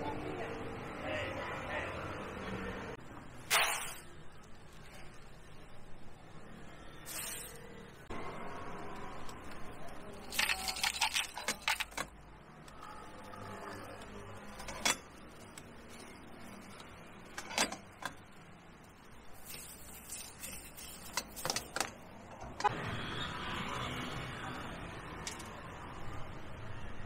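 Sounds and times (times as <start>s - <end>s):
hard objects clinking and knocking: 10.2s - 12.2s.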